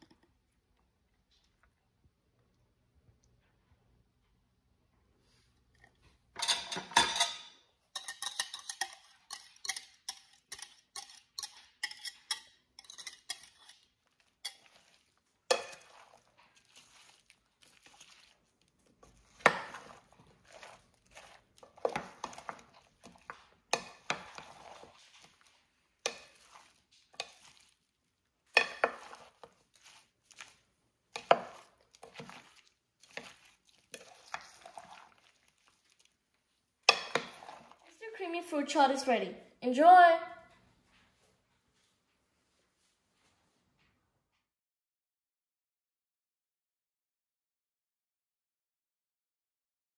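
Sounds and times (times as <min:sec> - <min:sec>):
spoon clinking and scraping glass: 0:06.4 - 0:17.2, 0:19.3 - 0:25.4, 0:26.0 - 0:27.7, 0:28.5 - 0:30.6, 0:31.2 - 0:35.3, 0:36.9 - 0:37.8.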